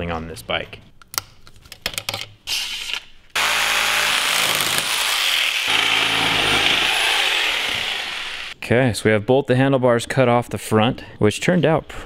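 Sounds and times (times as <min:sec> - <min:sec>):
power saw cutting metal: 0:03.4 - 0:08.6.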